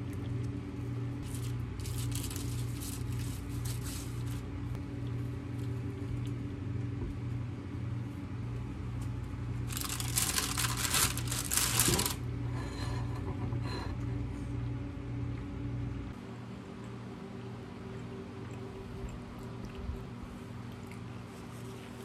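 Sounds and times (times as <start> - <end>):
steady low hum: 0.0 - 22.0
baking paper rustling and crinkling: 1.2 - 4.6, 9.6 - 12.2.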